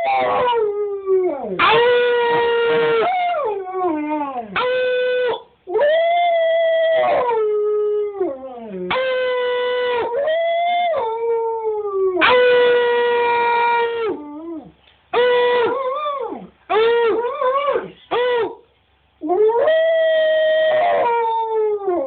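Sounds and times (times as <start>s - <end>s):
dog howling: 0.0s - 18.6s, 19.2s - 22.0s.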